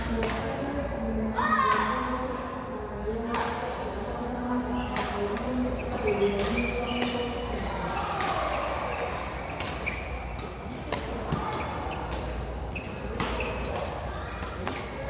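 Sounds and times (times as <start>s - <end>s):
court shoes squeaking: 4.7s - 15.0s
rackets hitting shuttlecock: 6.2s - 15.0s.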